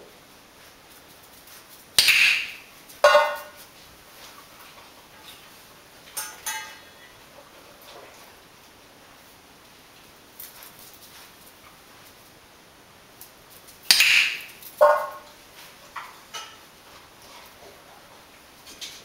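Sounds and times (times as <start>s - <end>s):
metal dog bowl clattering: 6.2s - 6.8s.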